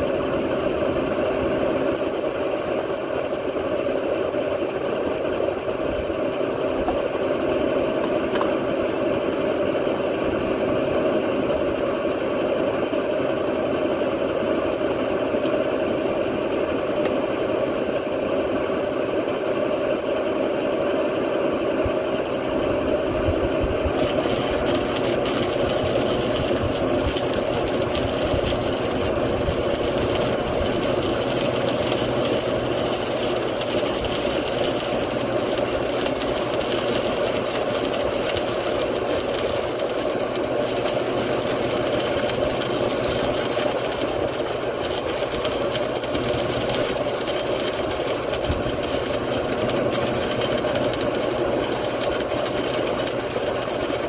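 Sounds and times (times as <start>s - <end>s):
welder humming: 23.6s - 54.0s
welding crackling hiss: 23.9s - 54.0s.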